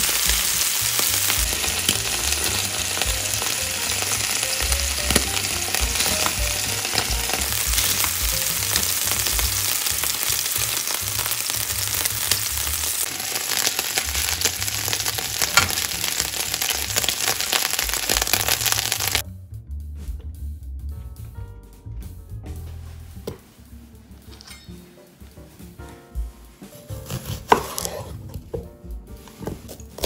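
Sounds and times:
meat sizzling in frying pan: 0.0 - 19.2
oil popping: 0.0 - 19.2.

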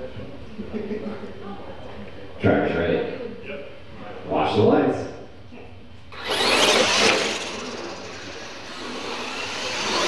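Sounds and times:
toy trucks motor whine: 6.1 - 10.0.

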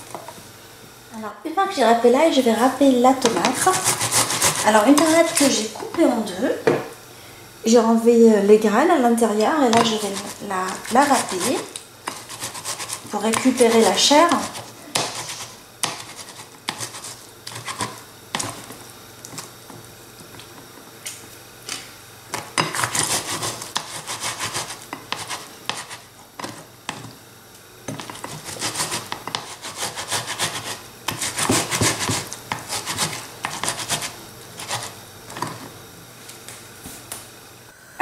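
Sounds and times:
tomato grated on metal grater: 3.2 - 5.8, 9.6 - 18.8, 22.6 - 27.1, 27.9 - 35.6.

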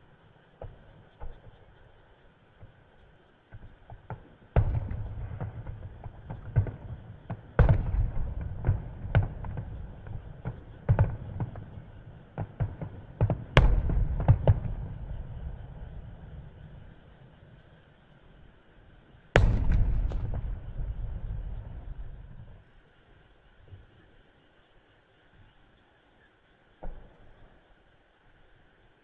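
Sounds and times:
firework pops and crackles: 0.6 - 17.7, 19.4 - 22.8, 26.8 - 27.7
firework booms: 3.5 - 17.1, 19.4 - 22.7.

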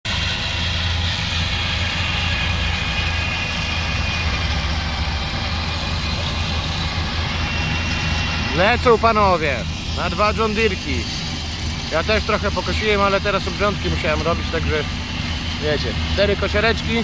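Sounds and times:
mower whine: 0.0 - 17.0
tractor engine droning: 0.0 - 17.0.

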